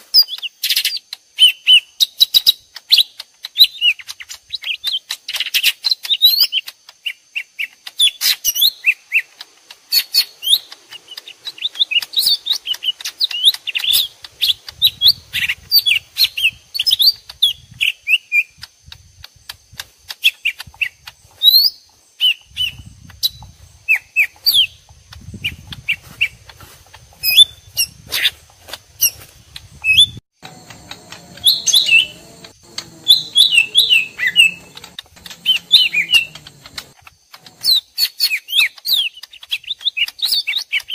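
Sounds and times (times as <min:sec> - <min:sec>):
birds chirping and whistling: 0:00.1 - 0:18.7, 0:19.8 - 0:40.9
steady high tone: 0:30.4 - 0:36.9.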